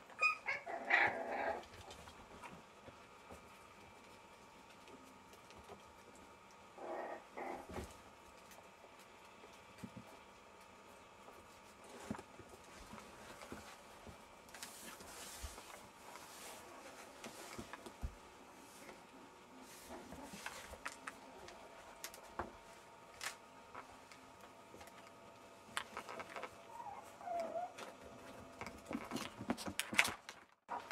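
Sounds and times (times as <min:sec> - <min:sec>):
puppy paws clicking on wooden floor: 0:01.6 - 0:06.7, 0:07.6 - 0:16.3, 0:20.0 - 0:30.9.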